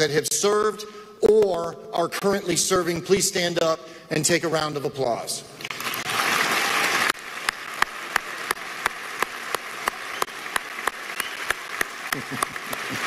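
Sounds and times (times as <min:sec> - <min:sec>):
audience applauding: 0:05.7 - 0:13.0
close hand claps: 0:05.7 - 0:13.0.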